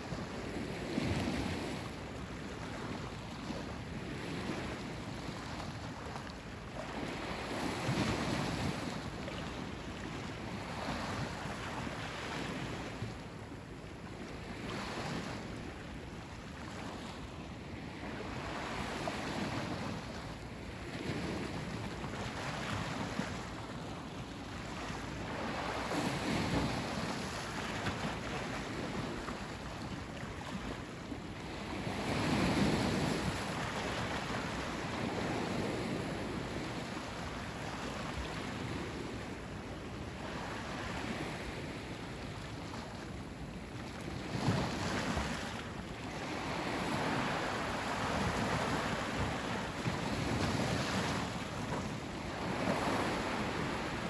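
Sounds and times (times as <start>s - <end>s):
ocean waves breaking: 17.9s - 39.5s, 40.1s - 54.0s.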